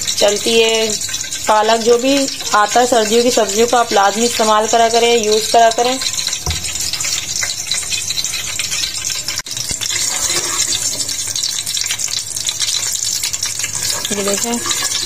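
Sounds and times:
spices sizzling in hot oil: 0:00.0 - 0:15.0
wooden spatula stirring: 0:09.8 - 0:11.2, 0:13.6 - 0:15.0.

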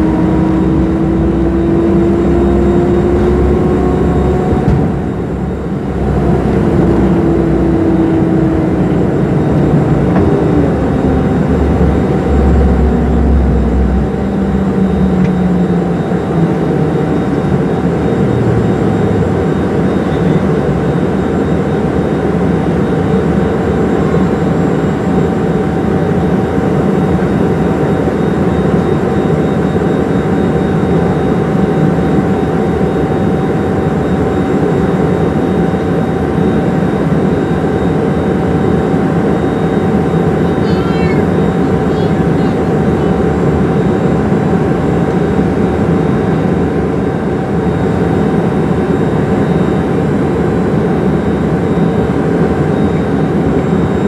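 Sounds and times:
tone falling in pitch: 0:00.0 - 0:17.2
wheels rumbling on runway: 0:00.0 - 0:21.0
jet engines roaring in cabin: 0:00.0 - 0:54.0.

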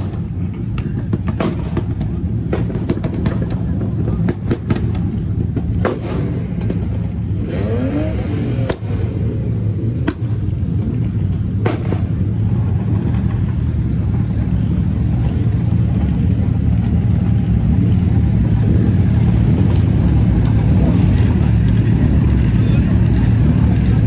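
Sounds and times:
rally car engines idling: 0:00.0 - 0:24.0.

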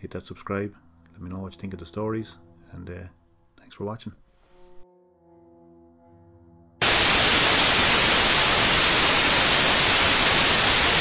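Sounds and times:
tv static hiss: 0:06.8 - 0:11.0.

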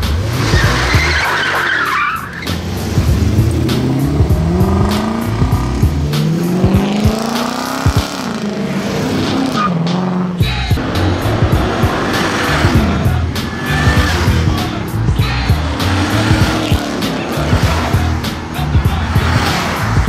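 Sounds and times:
background music with beat: 0:00.0 - 0:20.0
car engine accelerating: 0:00.0 - 0:20.0
harsh rushing noise: 0:00.0 - 0:20.0.

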